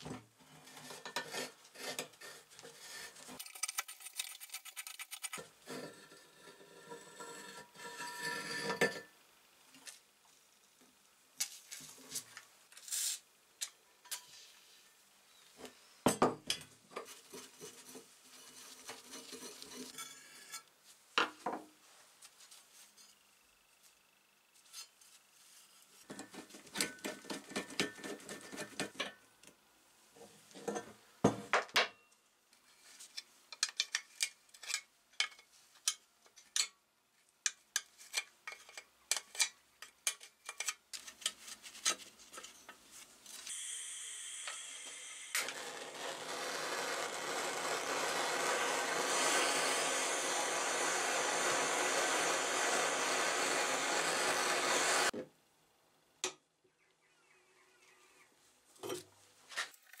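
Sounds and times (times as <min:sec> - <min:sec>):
gas torch hissing: 0:43.5 - 0:55.1.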